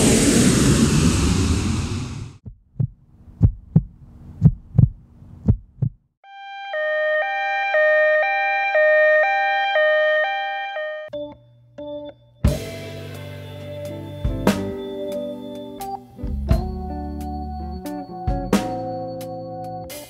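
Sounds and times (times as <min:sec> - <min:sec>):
heartbeat thumps: 0:02.4 - 0:06.1.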